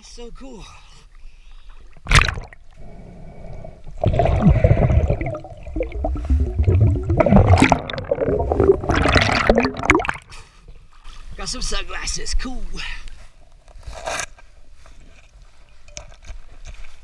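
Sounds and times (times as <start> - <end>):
sharp water splash: 2.0 - 2.6, 4.0 - 10.4
muffled underwater rumbling and gurgling: 3.2 - 10.2.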